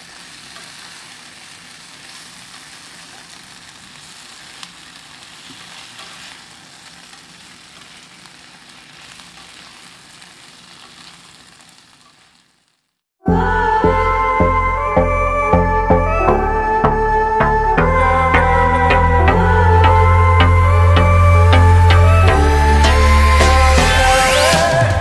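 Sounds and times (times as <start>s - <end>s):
vegetables sizzling in oil: 0.0s - 13.0s
loud music: 13.3s - 25.0s.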